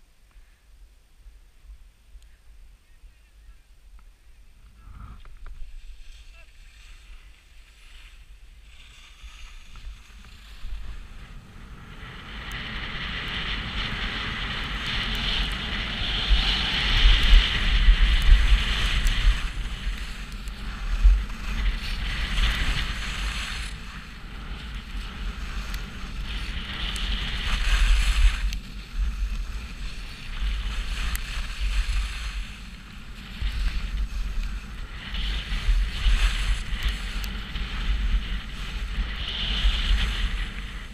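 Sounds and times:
skis scraping over snow: 0:02.5 - 0:40.9
wind buffeting microphone: 0:08.4 - 0:40.9.

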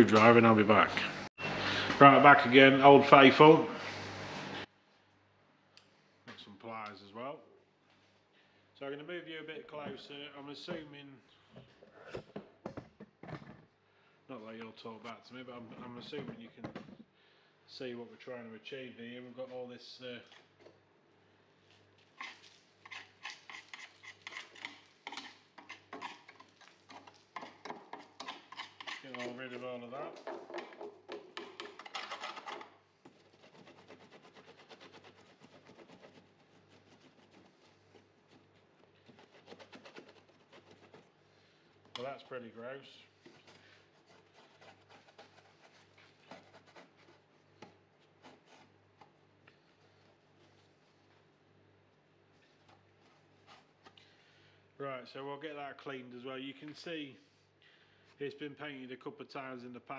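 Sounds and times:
screwdriver scraping rusted metal: 0:22.2 - 0:29.7, 0:31.4 - 0:32.7.

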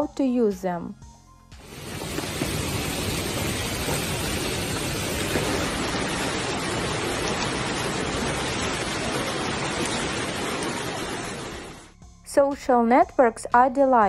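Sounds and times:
hail and rain on cars: 0:01.6 - 0:11.9.

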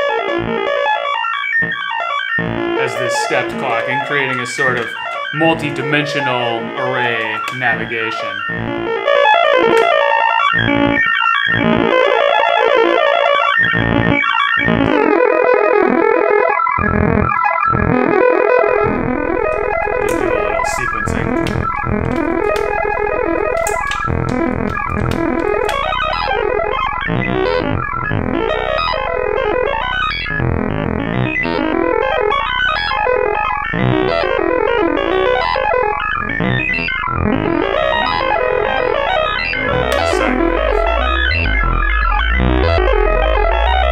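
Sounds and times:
synthesizer clocked notes: 0:00.0 - 0:43.9
low synth drone: 0:08.3 - 0:09.6, 0:10.5 - 0:12.1, 0:16.8 - 0:43.9.

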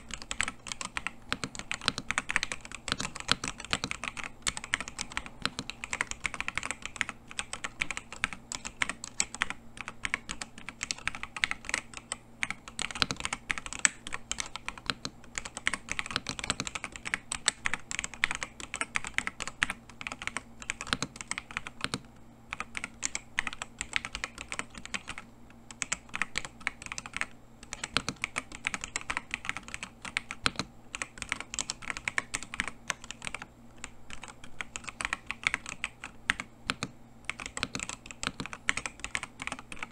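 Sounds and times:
mechanical keyboard typing: 0:00.0 - 0:39.9.

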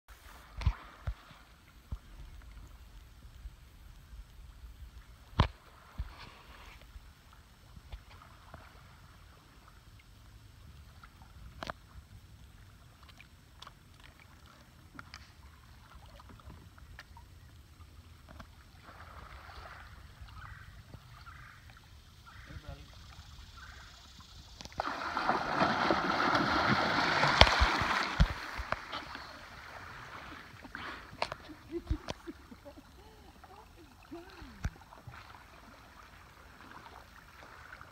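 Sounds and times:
light water sounds: 0:00.1 - 0:37.9
water churning and splashing: 0:18.3 - 0:20.6, 0:24.4 - 0:37.9.

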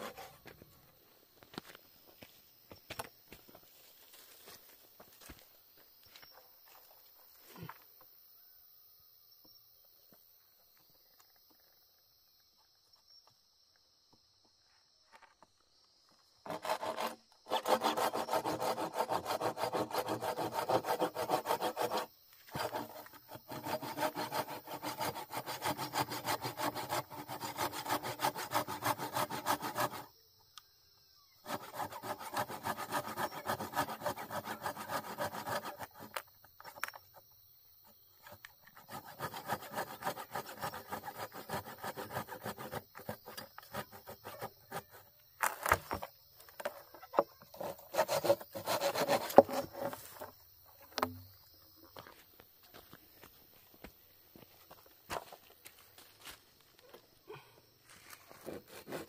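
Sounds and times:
handsaw cutting wood: 0:00.0 - 0:00.5, 0:16.4 - 0:30.1, 0:31.4 - 0:36.2, 0:38.2 - 0:45.1, 0:47.5 - 0:50.3, 0:58.4 - 0:59.0.

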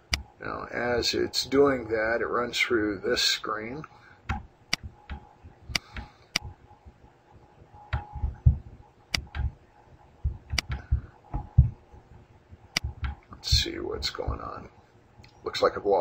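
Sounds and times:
dull low knocks: 0:07.9 - 0:09.6, 0:10.2 - 0:11.8, 0:12.8 - 0:14.6.

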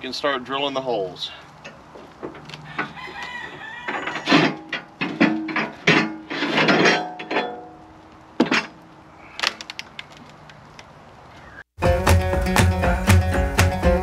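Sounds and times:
metal bar clanking and scraping: 0:01.7 - 0:08.8.

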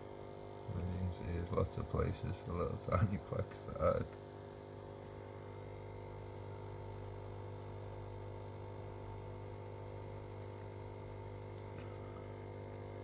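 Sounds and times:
aquarium equipment humming: 0:00.0 - 0:13.0.

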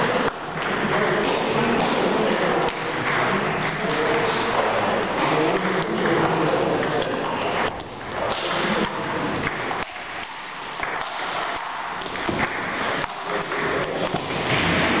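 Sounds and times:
hall background noise: 0:00.0 - 0:15.0
ping-pong ball clicking off paddles: 0:00.1 - 0:15.0
ball bouncing on table: 0:05.2 - 0:14.9.

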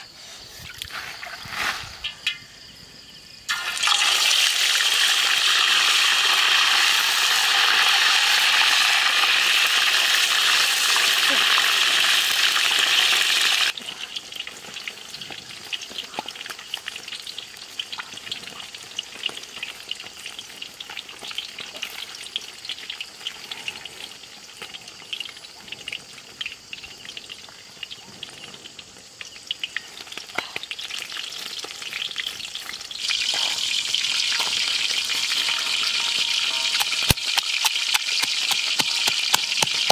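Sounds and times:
fish sizzling in hot oil: 0:03.5 - 0:39.9
oil crackling and popping: 0:03.5 - 0:39.9.

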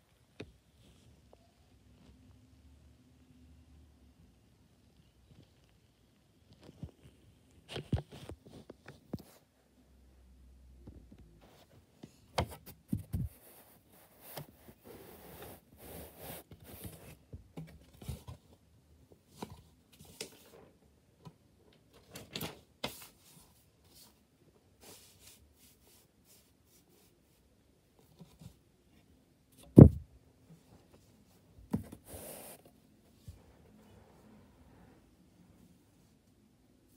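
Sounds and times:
loud thump: 0:29.8 - 0:30.0.

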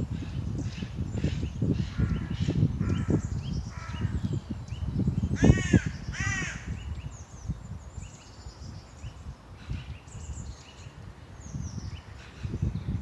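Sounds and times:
songbirds chirping faintly: 0:00.0 - 0:13.0
crow cawing: 0:05.4 - 0:06.7.

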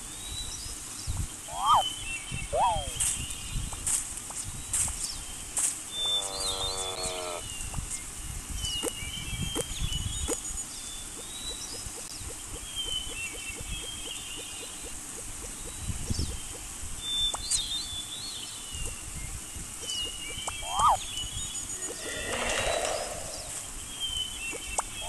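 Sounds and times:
bird chirps: 0:01.4 - 0:05.3, 0:05.9 - 0:25.0
animal call: 0:01.5 - 0:03.0, 0:06.0 - 0:07.4, 0:20.6 - 0:21.0, 0:21.8 - 0:23.8.

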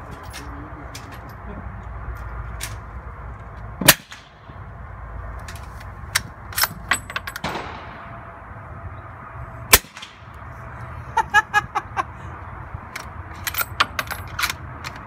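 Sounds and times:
suppressed rifle shots: 0:07.4 - 0:08.1
sharp metallic clicks: 0:12.8 - 0:15.0.

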